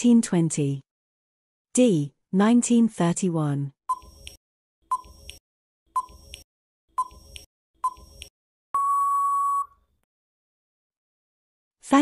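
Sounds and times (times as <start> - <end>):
electronic tick-beeps: 6.0 - 6.4, 7.0 - 9.8
long steady beep: 8.8 - 9.8.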